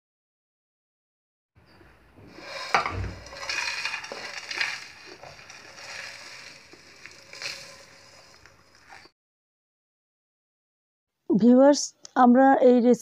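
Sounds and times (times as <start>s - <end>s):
spatula scraping pan: 1.7s - 9.1s.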